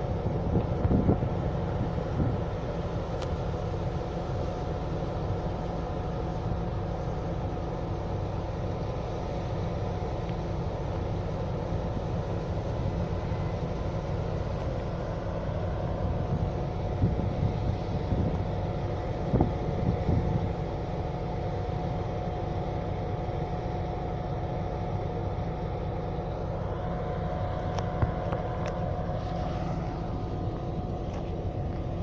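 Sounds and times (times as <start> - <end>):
diesel locomotive engine idling: 0.0 - 32.0
wind buffeting microphone: 0.1 - 2.7, 15.5 - 20.6.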